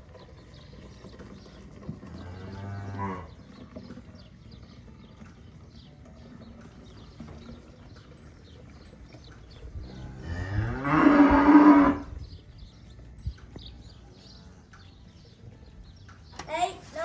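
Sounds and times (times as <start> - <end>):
cow mooing: 2.1 - 3.4, 10.0 - 12.1.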